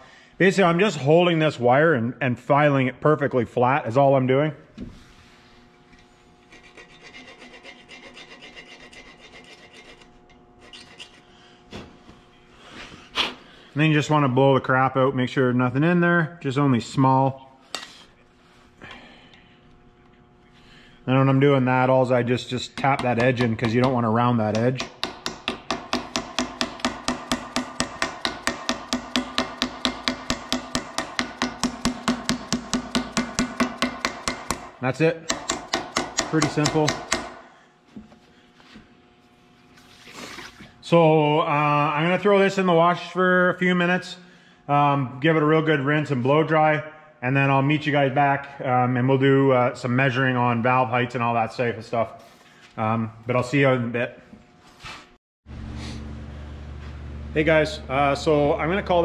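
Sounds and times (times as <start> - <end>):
hand file rasping on metal wire: 6.4 - 11.3
mallet tapping on metal: 22.8 - 34.7, 35.3 - 37.4
iron cylinder head ringing: 22.9 - 34.7.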